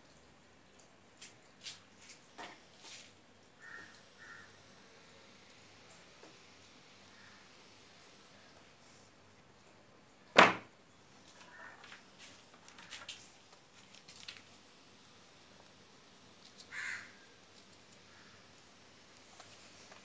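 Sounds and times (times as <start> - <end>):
insulating tape crinkling: 11.1 - 20.0.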